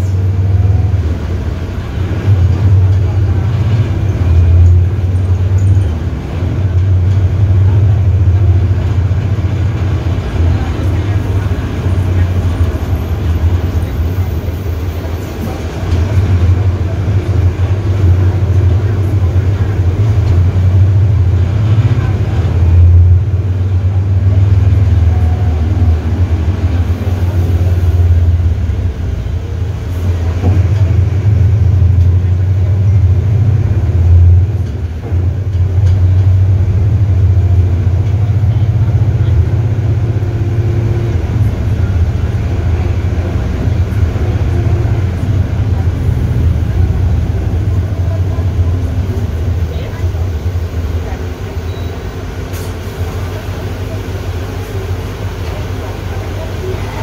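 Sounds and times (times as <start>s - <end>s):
bus diesel engine drone: 0.0s - 57.0s.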